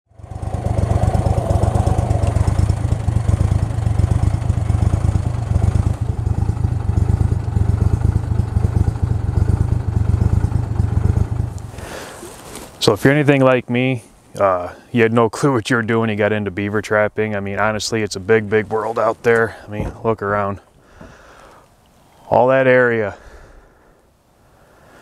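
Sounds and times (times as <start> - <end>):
small boat motor running: 0.1 - 11.8.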